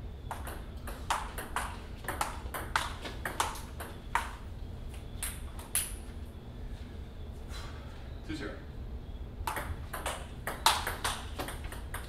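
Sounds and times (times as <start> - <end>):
table tennis ball clicking: 0.3 - 4.4, 9.5 - 12.0.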